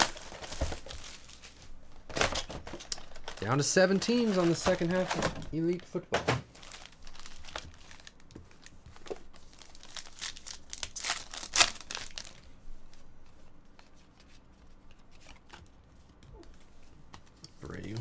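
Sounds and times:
cards rustling and clicking: 0:00.0 - 0:05.8, 0:06.6 - 0:18.0
foil wrapper crinkling and tearing: 0:00.0 - 0:05.8, 0:06.6 - 0:13.0.

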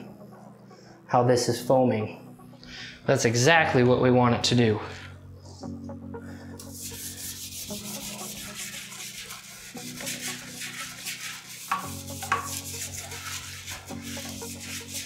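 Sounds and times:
toilet brush scrubbing bowl: 0:06.6 - 0:15.0.

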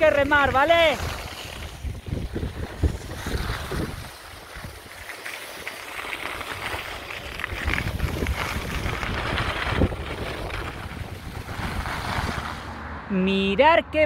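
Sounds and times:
wind buffeting microphone: 0:00.0 - 0:05.1, 0:06.2 - 0:13.1
skis scraping over snow: 0:00.0 - 0:12.8.

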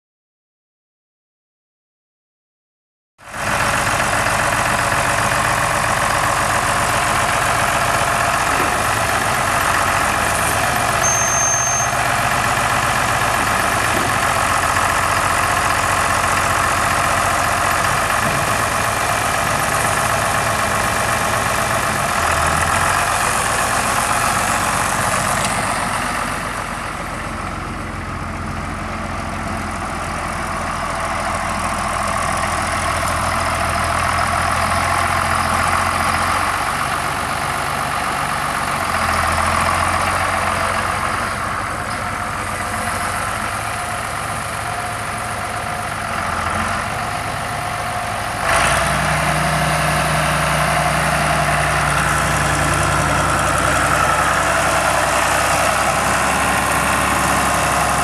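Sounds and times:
tractor diesel engine running: 0:03.2 - 0:58.0.

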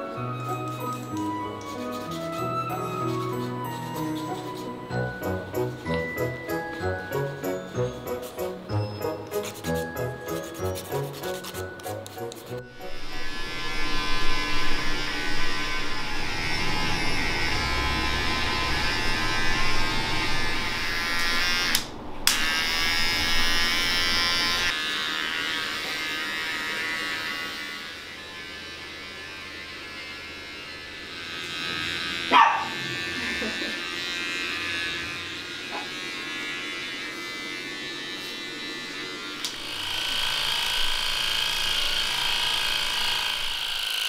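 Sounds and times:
pet trimmer buzzing: 0:00.4 - 0:44.0.

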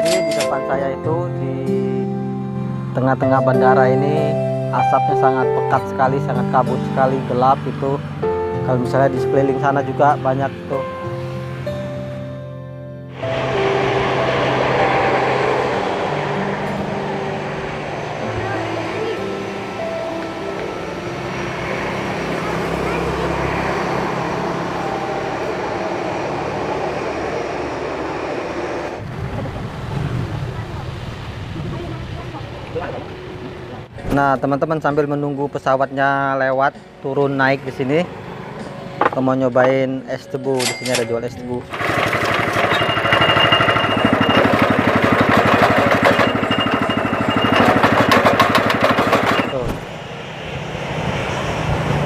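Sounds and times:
high steady whine: 0:13.1 - 0:20.8
jet engines roaring: 0:13.1 - 0:34.0, 0:47.8 - 0:52.0
juice press motor chugging: 0:41.7 - 0:49.6.

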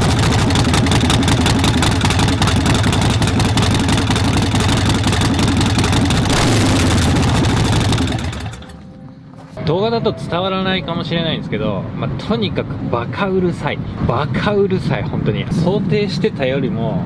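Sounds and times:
motorcycle engine idling: 0:00.0 - 0:08.9.

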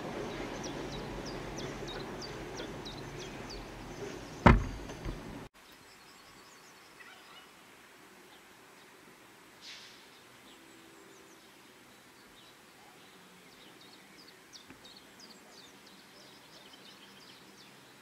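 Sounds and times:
freight train rumbling: 0:00.0 - 0:05.5
sharp loud knock: 0:04.4 - 0:05.2
faint high calls: 0:06.9 - 0:07.6.

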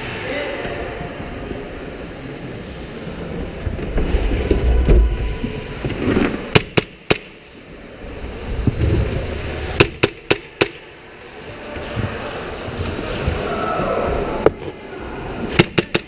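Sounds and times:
low rumble: 0:02.1 - 0:06.0.

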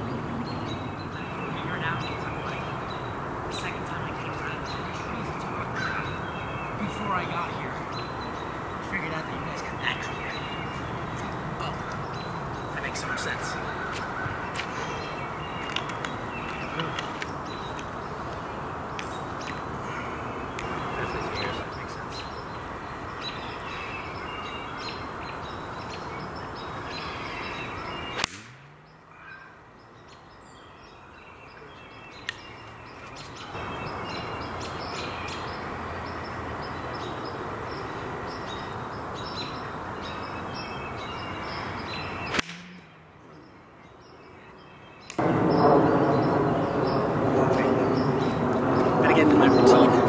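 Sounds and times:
birds chirping: 0:00.0 - 0:50.0
golf club striking ball: 0:28.1 - 0:28.6, 0:42.3 - 0:43.1.

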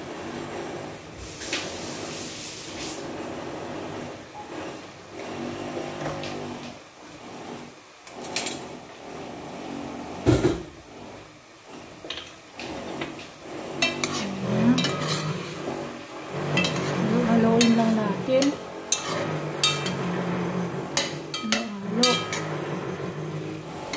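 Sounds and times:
stew being stirred: 0:11.8 - 0:23.9.

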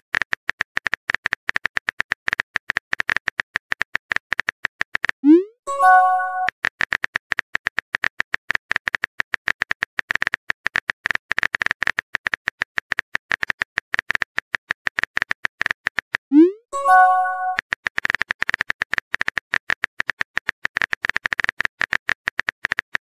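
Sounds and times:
short chime: 0:05.7 - 0:06.5, 0:16.8 - 0:17.6.

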